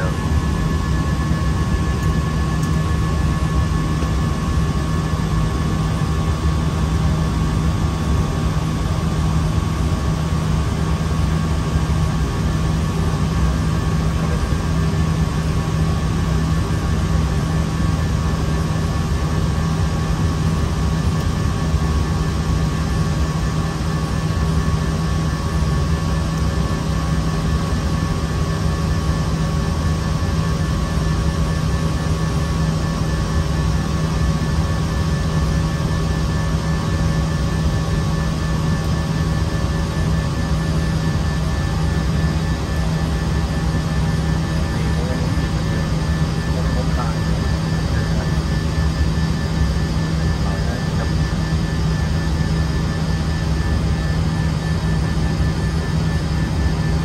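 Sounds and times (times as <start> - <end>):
constant low hum: 0.0 - 57.0.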